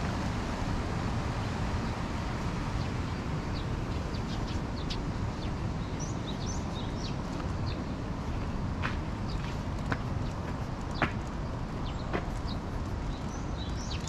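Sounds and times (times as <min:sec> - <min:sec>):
low outdoor rumble: 0:00.0 - 0:14.0
birds chirping: 0:01.4 - 0:14.0.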